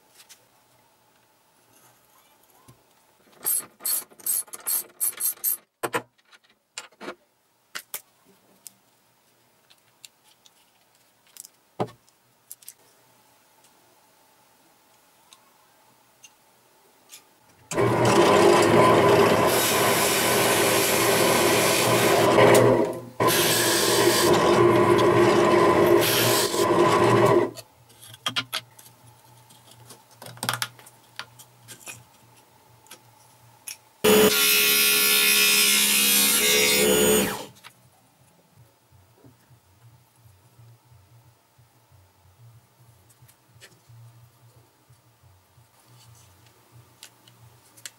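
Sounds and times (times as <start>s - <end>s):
drill press cutting plywood: 17.7s - 27.6s, 34.1s - 37.5s
scroll saw cutting plywood: 17.7s - 27.6s, 34.1s - 37.5s.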